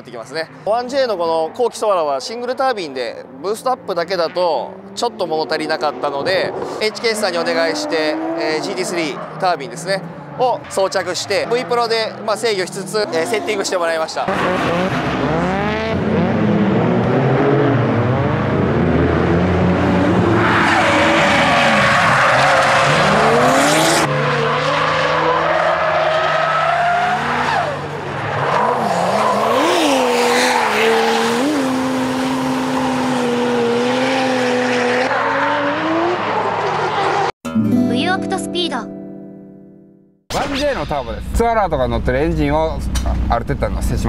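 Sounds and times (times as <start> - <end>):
turbocharged car engine revving: 11.4 - 26.4, 28.4 - 37.3.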